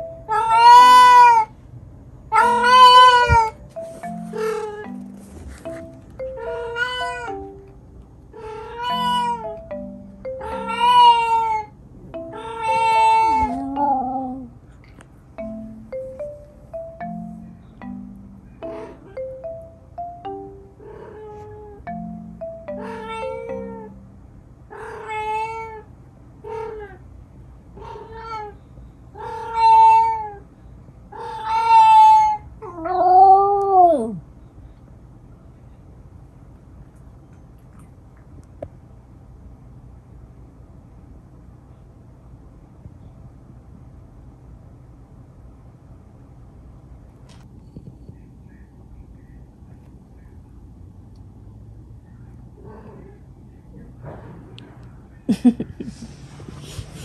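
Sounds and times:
cat yowling: 0.3 - 1.5, 2.3 - 3.6, 6.4 - 7.4, 8.4 - 9.6, 10.4 - 14.5, 22.8 - 24.0, 24.7 - 25.9, 27.8 - 28.6, 29.2 - 30.4, 31.1 - 34.2.

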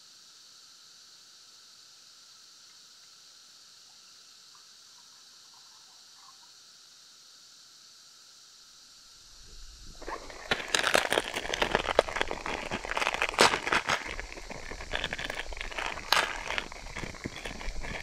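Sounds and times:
campfire crackling and popping: 9.4 - 18.0.

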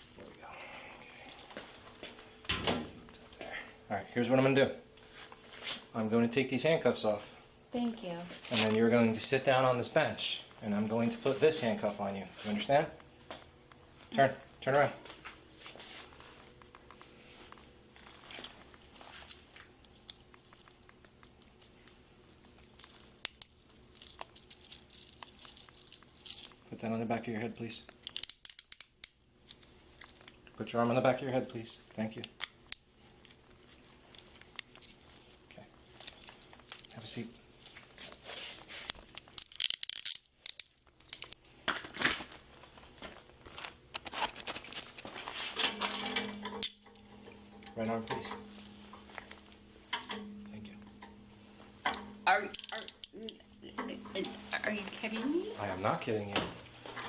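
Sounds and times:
low steady hum: 0.0 - 57.0
handcuff metal clicks and rattles: 28.0 - 29.2, 39.2 - 41.4, 52.5 - 53.4.

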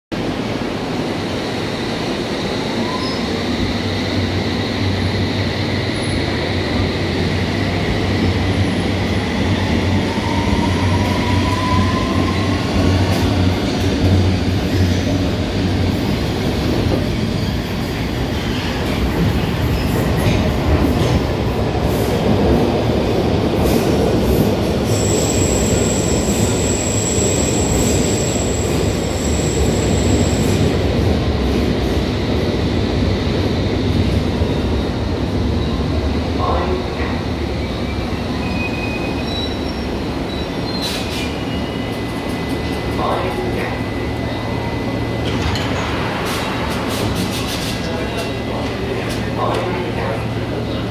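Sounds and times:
train rumble and low hum: 0.1 - 50.9
high train squeal: 1.5 - 6.9, 8.7 - 13.8, 17.0 - 21.2, 23.6 - 30.9, 37.5 - 48.9.

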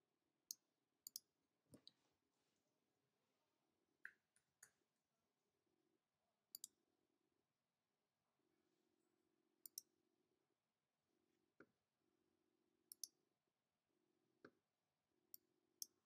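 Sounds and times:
computer mouse clicks: 6.5 - 6.7, 9.6 - 9.9, 12.9 - 13.1.

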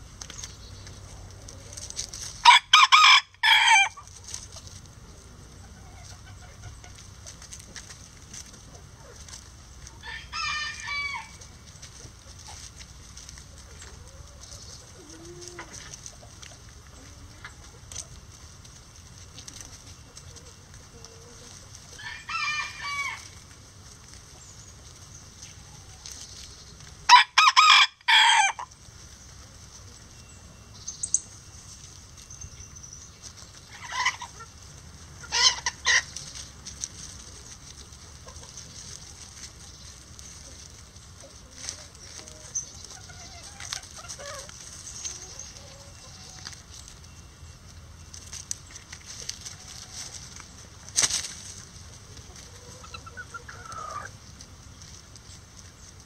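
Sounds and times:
hens clucking: 0.0 - 56.0
rooster crowing: 2.4 - 4.0, 10.0 - 11.4, 22.0 - 23.4, 27.1 - 28.7.

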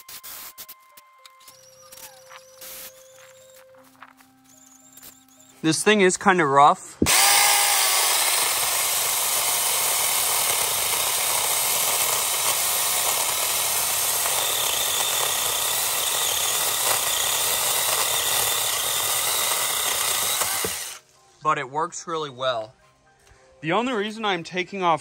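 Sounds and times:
mini chainsaw cutting branch: 7.0 - 21.0.

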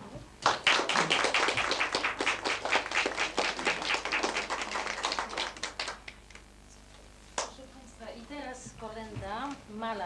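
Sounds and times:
audience applauding: 0.4 - 6.4.

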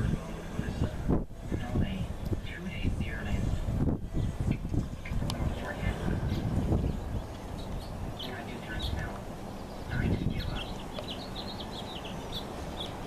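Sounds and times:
low steady rumble: 0.0 - 13.0
small birds chirping: 3.1 - 13.0.

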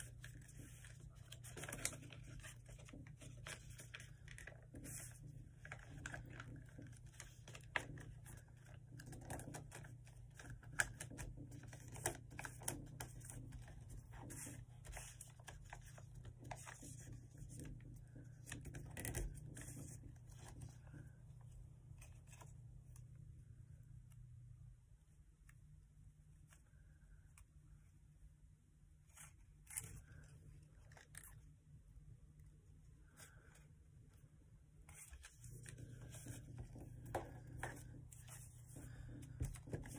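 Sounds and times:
paper being folded: 0.0 - 23.0, 29.1 - 31.5, 34.8 - 39.9.

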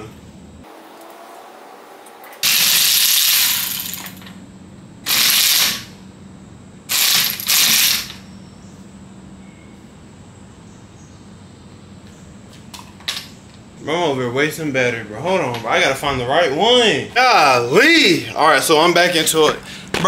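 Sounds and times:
socket ratchet wrench clicking: 6.9 - 8.2.

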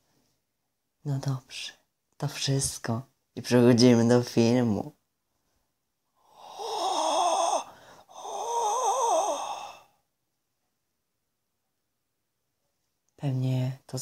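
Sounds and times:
breathy wavering sounds: 6.2 - 10.1.

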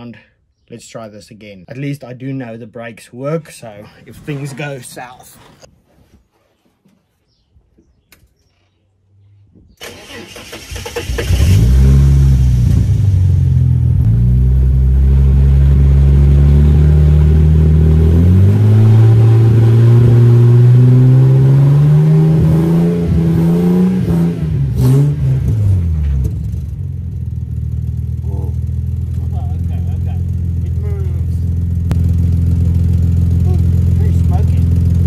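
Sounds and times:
car engine revving: 9.8 - 35.0.

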